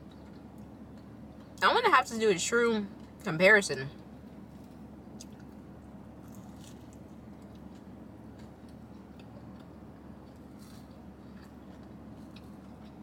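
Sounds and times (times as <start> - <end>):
steady low hum: 0.0 - 13.0
person chewing crunchy food: 4.1 - 13.0.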